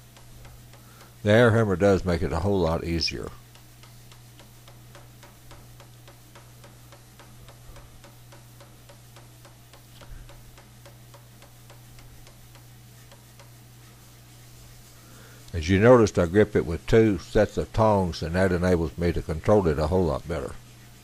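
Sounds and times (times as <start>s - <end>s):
low steady hum: 0.0s - 21.0s
air hammer striking steel: 3.5s - 13.6s.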